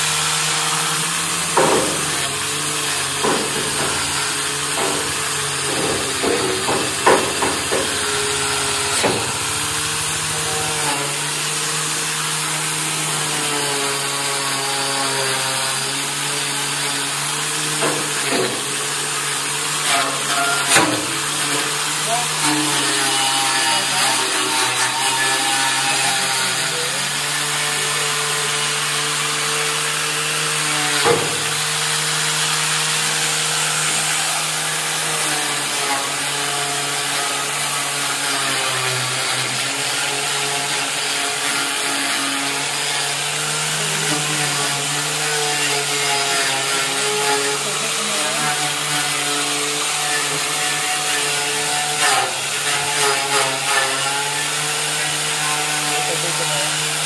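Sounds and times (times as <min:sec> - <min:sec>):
wire brush tool scouring metal: 0:00.0 - 0:12.1
sharp knock: 0:01.5 - 0:08.2.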